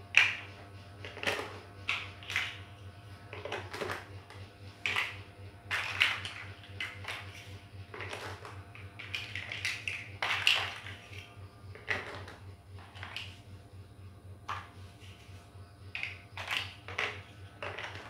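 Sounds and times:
plastic bricks clicking and clattering: 0:03.3 - 0:11.2, 0:11.8 - 0:13.4, 0:15.9 - 0:18.0.

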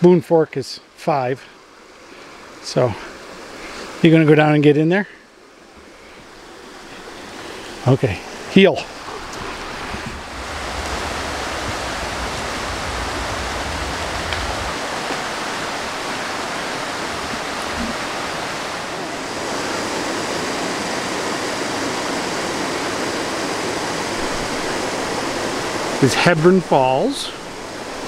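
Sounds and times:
stream rushing over rocks: 0:05.4 - 0:28.0
low wind rumble: 0:08.2 - 0:28.0.

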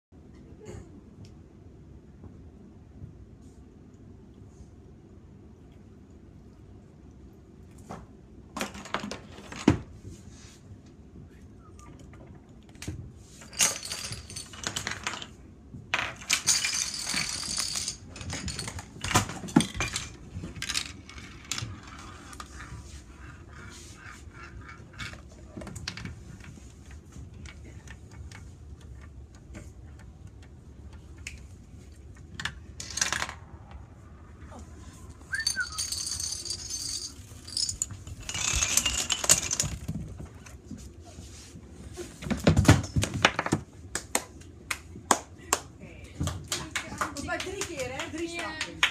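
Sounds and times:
dominoes and blocks rattling: 0:13.4 - 0:15.4, 0:16.0 - 0:22.6, 0:32.4 - 0:33.6, 0:35.3 - 0:40.0.

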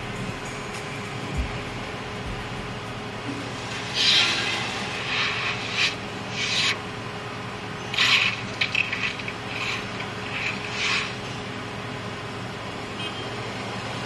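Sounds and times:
low engine drone: 0:00.0 - 0:14.0
short rasping scrapes: 0:03.9 - 0:06.8, 0:07.9 - 0:11.4.

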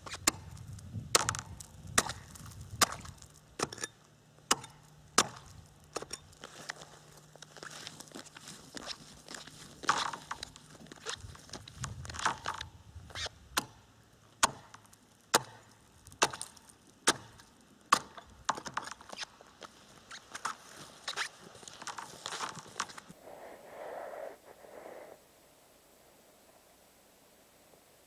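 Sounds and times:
hatchet chopping into ice: 0:01.2 - 0:03.9, 0:04.5 - 0:06.2, 0:14.4 - 0:15.6, 0:16.2 - 0:18.9.

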